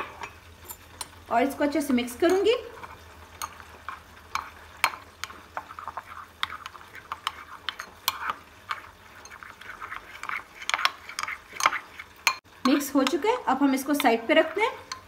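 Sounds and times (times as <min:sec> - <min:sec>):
spoon scraping bowl: 0:02.2 - 0:13.2, 0:13.8 - 0:15.0
spoon clinking against bowl: 0:03.4 - 0:12.8.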